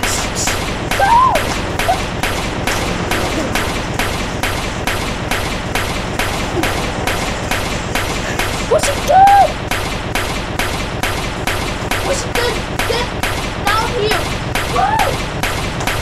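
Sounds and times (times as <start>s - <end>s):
rapid gunfire: 0.0s - 16.0s
voice-like cry: 1.0s - 2.2s.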